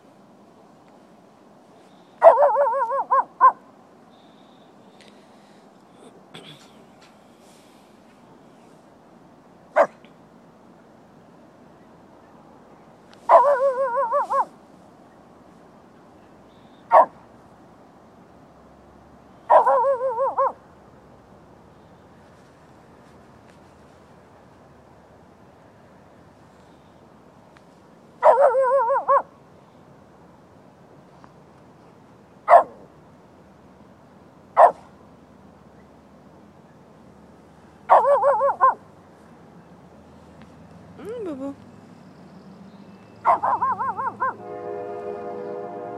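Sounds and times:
dog bark-howls: 2.2 - 3.6, 13.3 - 14.5, 16.9 - 17.2, 19.5 - 20.6, 28.2 - 29.3, 32.5 - 32.8, 34.6 - 34.8, 37.9 - 38.8, 43.2 - 44.4
dog short bark: 13.3 - 14.5, 34.6 - 34.9, 43.2 - 44.4.

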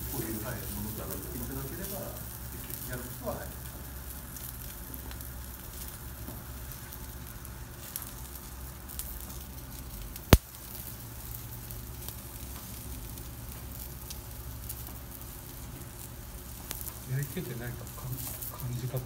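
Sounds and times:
skewers sizzling on a grill: 0.0 - 19.0.

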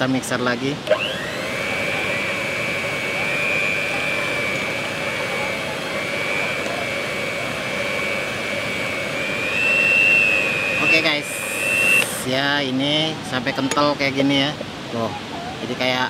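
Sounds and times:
electric hand mixer whining: 0.8 - 12.3.

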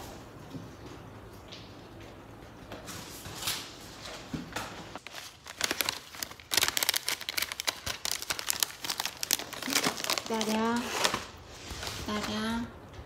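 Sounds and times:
paper pouch crinkling: 5.0 - 12.4.

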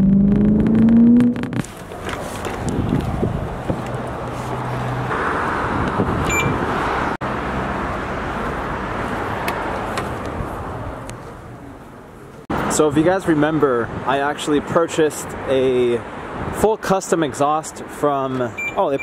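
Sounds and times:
traffic noise: 0.0 - 19.0
short electronic beep: 6.3 - 6.6.

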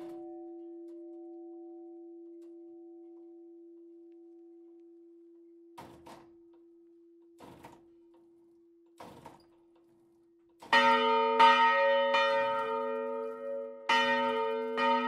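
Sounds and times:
church bell ringing: 0.0 - 4.0, 10.7 - 15.0.

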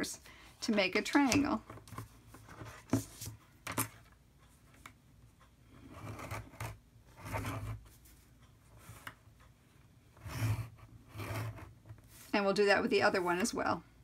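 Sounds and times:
scoring tool scratching cardstock: 5.8 - 7.8, 10.2 - 11.8.

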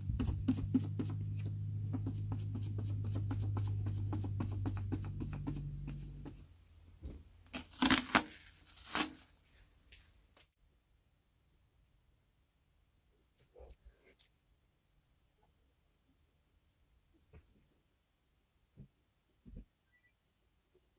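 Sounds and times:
sponge dabbing on paper: 0.0 - 6.5
low hum: 0.0 - 7.0
tape and paper ripping: 7.5 - 9.3.

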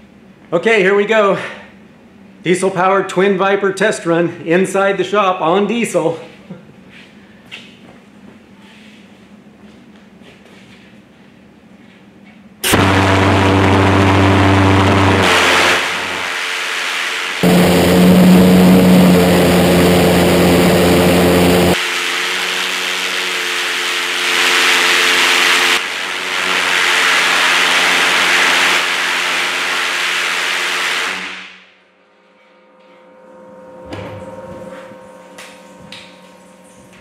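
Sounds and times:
pulsejet engine droning: 12.6 - 31.6.

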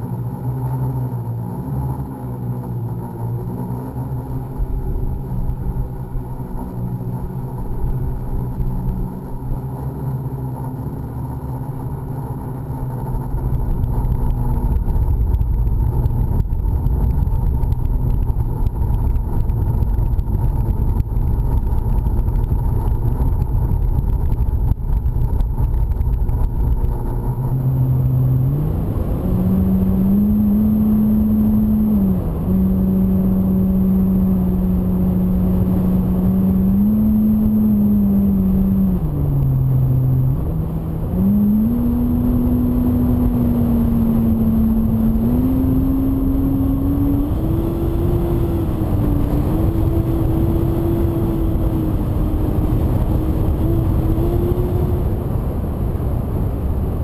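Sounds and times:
electric motor and propeller humming: 0.0 - 57.0
wind buffeting camera: 13.2 - 57.0.

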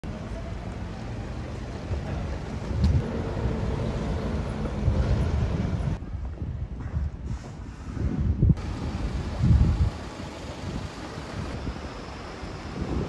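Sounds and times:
passing vehicles: 0.0 - 6.0
wind buffeting microphone: 2.6 - 13.0.

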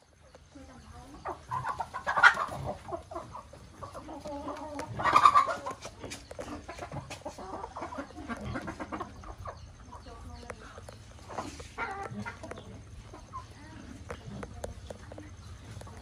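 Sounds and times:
chickens clucking: 0.0 - 16.0
loud chicken calls: 1.4 - 9.8.

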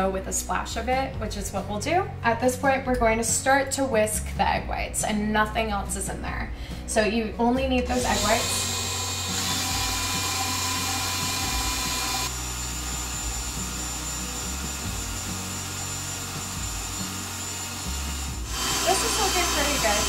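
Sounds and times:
stand mixer whisking egg whites: 8.0 - 20.0.

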